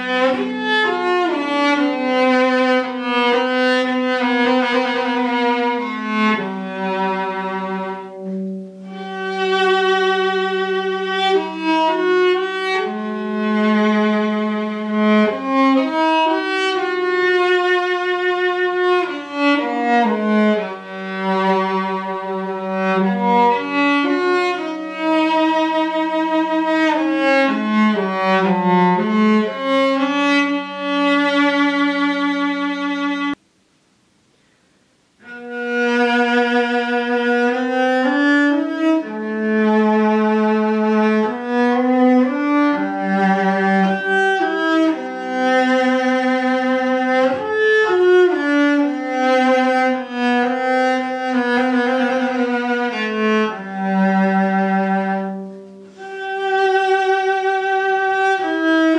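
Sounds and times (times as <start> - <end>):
solo cello bowed melody: 0.0 - 33.4, 35.2 - 58.9.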